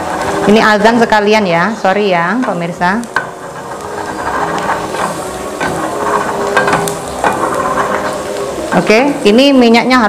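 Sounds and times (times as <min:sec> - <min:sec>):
ginger sizzling in hot oil: 0:00.0 - 0:10.0.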